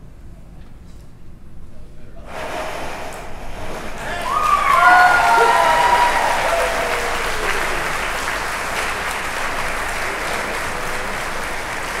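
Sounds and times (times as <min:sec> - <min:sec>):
audience applauding: 0:03.7 - 0:12.0
crowd whooping: 0:03.9 - 0:12.0.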